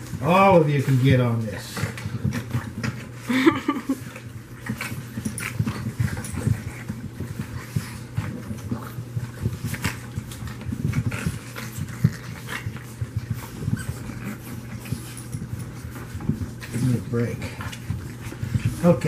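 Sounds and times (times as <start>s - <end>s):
puppies grunting and breathing: 0.0s - 19.0s.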